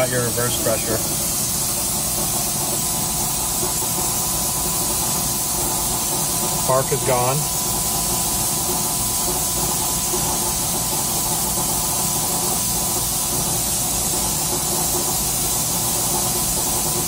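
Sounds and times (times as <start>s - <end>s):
test stand machine hissing: 0.0s - 17.0s.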